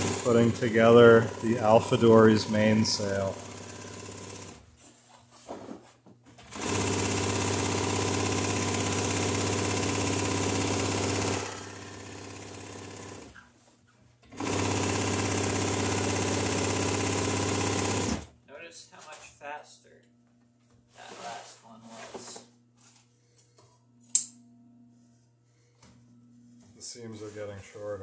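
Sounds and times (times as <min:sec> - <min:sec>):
industrial sewing machine stitching: 0:00.0 - 0:04.6, 0:06.4 - 0:13.3, 0:14.3 - 0:18.3.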